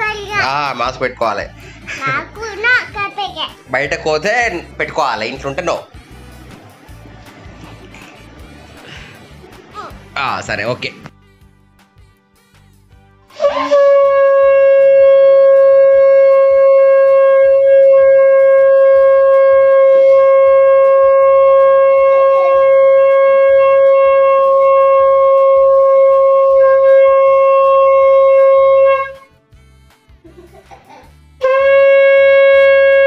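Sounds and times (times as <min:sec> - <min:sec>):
conch shell blown: 0:13.3 - 0:29.3, 0:31.4 - 0:33.0.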